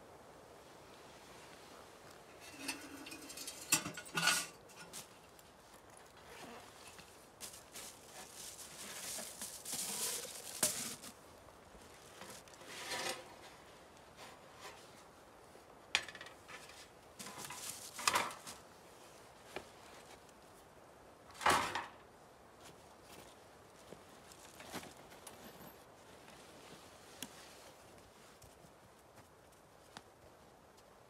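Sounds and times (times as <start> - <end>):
metallic clanks and knocks: 2.4 - 4.9
fabric backpack rustling: 6.2 - 11.2.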